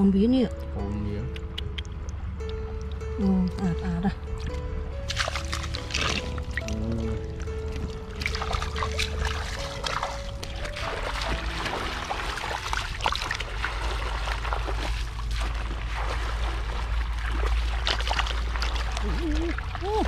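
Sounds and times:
background music: 0:00.0 - 0:15.3
shallow water splashing: 0:01.6 - 0:20.0.

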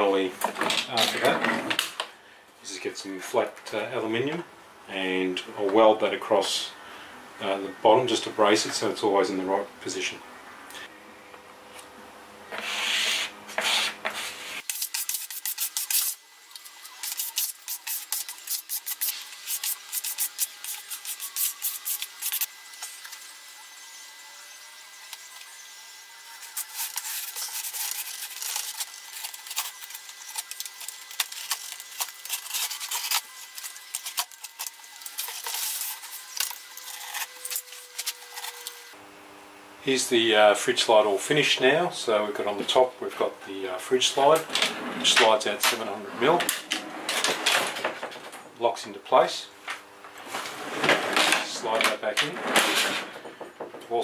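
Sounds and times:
rubbing and scraping strokes: 0:12.5 - 0:22.5, 0:26.4 - 0:39.0.

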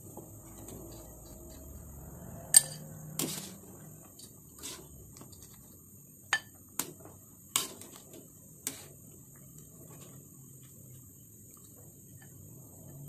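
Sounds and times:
wire skimmer clinking on metal wok: 0:02.5 - 0:03.6.

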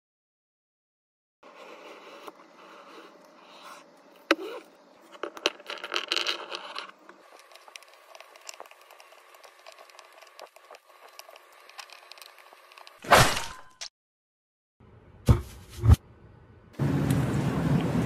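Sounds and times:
plastic toy pieces clattering: 0:05.1 - 0:10.4.

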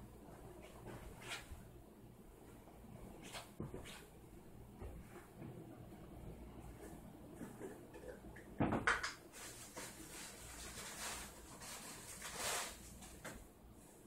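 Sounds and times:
soft scraping and rustling: 0:09.3 - 0:14.0.

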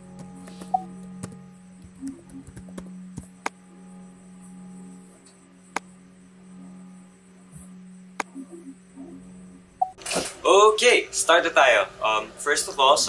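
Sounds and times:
steady low hum: 0:00.0 - 0:13.0
sharp clicks: 0:08.2 - 0:08.4.

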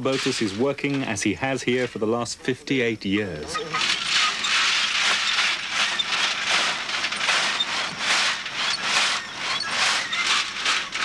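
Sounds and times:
stones rattling in a sieve: 0:00.0 - 0:02.0, 0:03.7 - 0:11.0.

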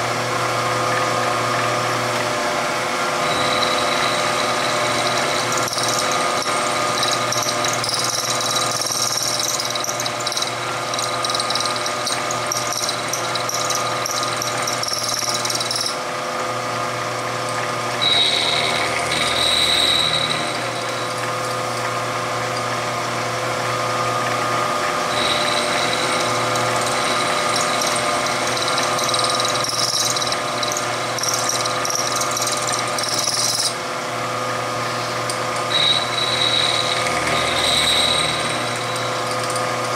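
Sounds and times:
machine whine: 0:00.0 - 0:39.9
milling machine running: 0:00.0 - 0:39.9
high-pitched cutting noise: 0:03.2 - 0:16.0, 0:18.0 - 0:21.5, 0:25.1 - 0:33.8.

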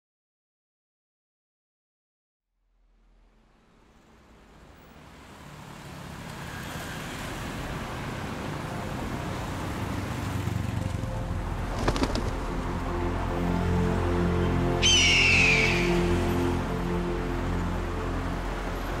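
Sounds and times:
road traffic noise: 0:03.5 - 0:19.0.

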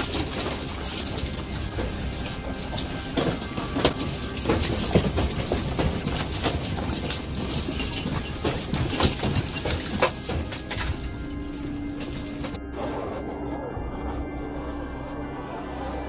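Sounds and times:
sharp knocks and clatters: 0:00.0 - 0:12.6.

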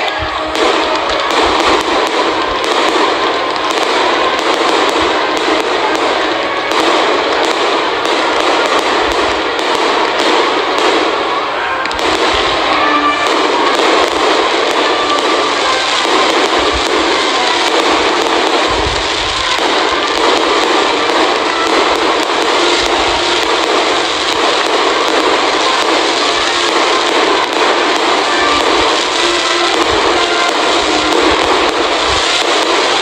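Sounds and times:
fireworks crackling: 0:00.0 - 0:33.0
low fireworks thumps: 0:00.0 - 0:33.0.

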